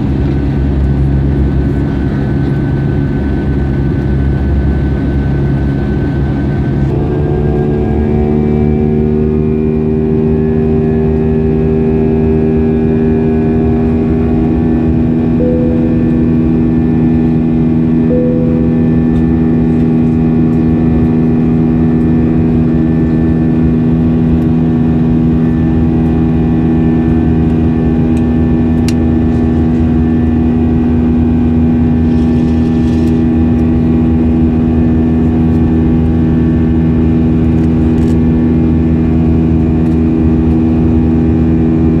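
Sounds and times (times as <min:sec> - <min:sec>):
jet engines in flight: 0:00.0 - 0:42.0
low steady hum: 0:13.2 - 0:21.7.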